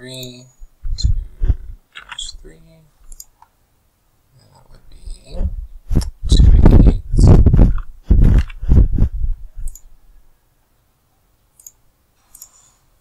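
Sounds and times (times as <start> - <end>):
computer mouse clicks: 3.0 - 3.5, 9.6 - 9.9, 11.6 - 12.8
loud voice close to microphone: 4.4 - 5.7.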